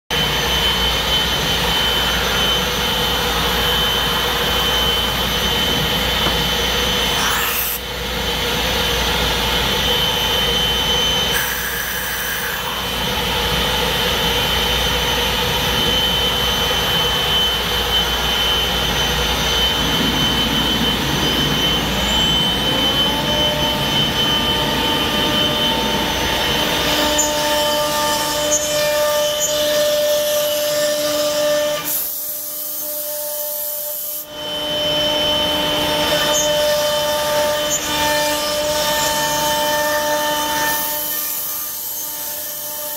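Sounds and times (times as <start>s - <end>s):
lower whine: 0.1s - 30.6s
dust extraction hose: 0.1s - 42.9s
router spindle whine: 0.1s - 42.9s
rush of wood cutting: 0.3s - 16.5s.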